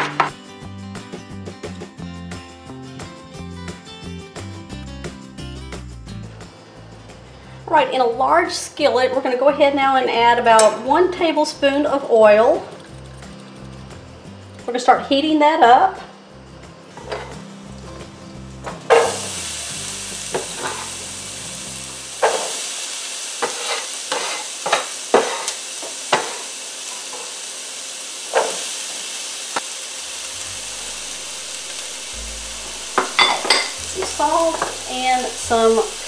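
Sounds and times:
vegetables sizzling in hot oil: 0:16.2 - 0:36.0.

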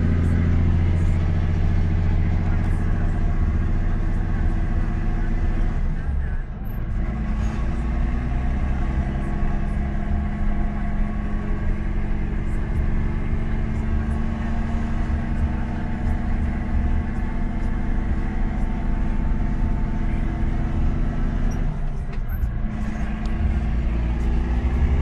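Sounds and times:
tractor diesel engine running: 0:00.0 - 0:25.0.

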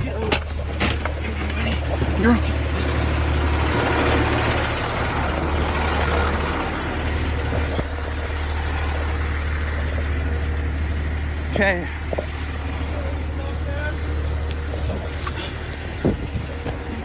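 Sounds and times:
wind on microphone: 0:00.0 - 0:10.2, 0:14.7 - 0:17.0
truck engine running: 0:00.0 - 0:17.0.

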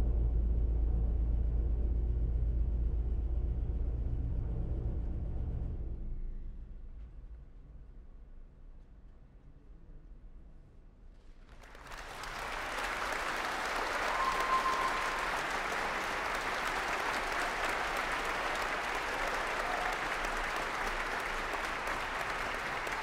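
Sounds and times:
audience applause: 0:11.6 - 0:23.0.

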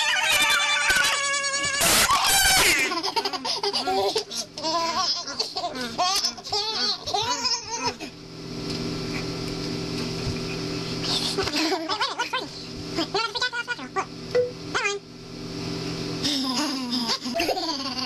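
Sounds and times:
steady hiss and low hum: 0:00.0 - 0:18.0
young people laughing: 0:11.4 - 0:13.6.

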